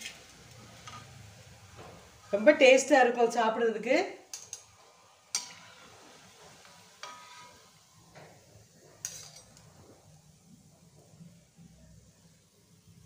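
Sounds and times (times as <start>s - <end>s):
metal utensils clinking: 9.0s - 9.8s.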